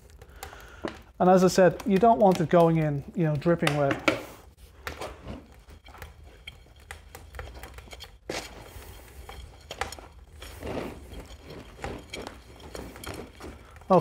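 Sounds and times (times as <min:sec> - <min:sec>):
metal bar scraping in bucket: 0:05.0 - 0:14.0.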